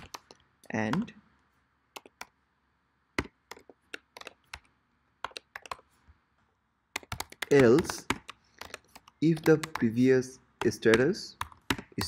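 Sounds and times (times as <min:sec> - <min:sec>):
typing on computer keyboard: 0:00.0 - 0:01.1, 0:02.0 - 0:02.4, 0:03.2 - 0:05.9, 0:06.9 - 0:12.0.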